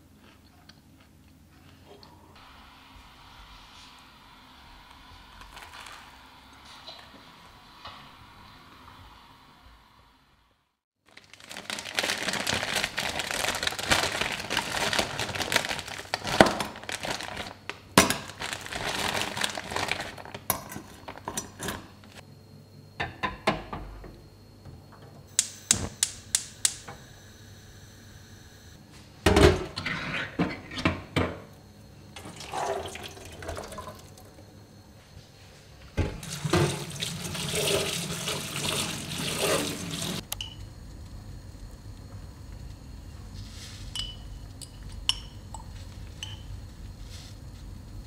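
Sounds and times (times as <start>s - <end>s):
plastic bag crinkling and tearing: 5.3s - 6.2s, 11.0s - 21.2s.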